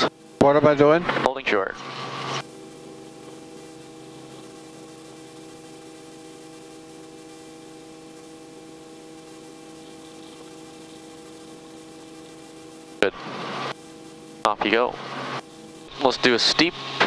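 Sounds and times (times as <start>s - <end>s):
helicopter hum: 0.1s - 17.0s
intercom hiss: 9.0s - 13.8s, 14.4s - 17.0s.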